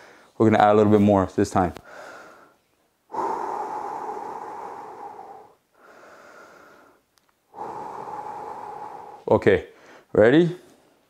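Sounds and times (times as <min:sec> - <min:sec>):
man breathing deeply: 0:00.0 - 0:00.4, 0:01.8 - 0:10.1.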